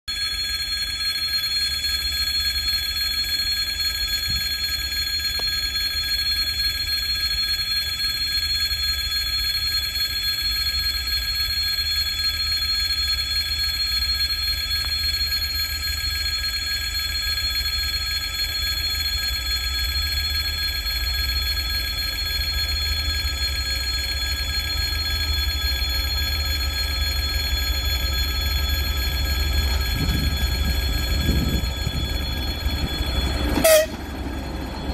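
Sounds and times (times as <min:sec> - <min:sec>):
bell-like ringing tones: 0:00.1 - 0:34.9.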